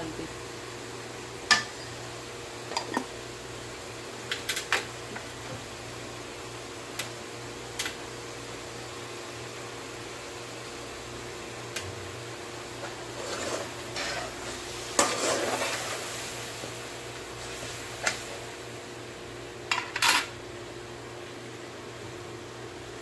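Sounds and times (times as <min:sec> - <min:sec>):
metal ladle scraping a wok: 0:12.8 - 0:16.0.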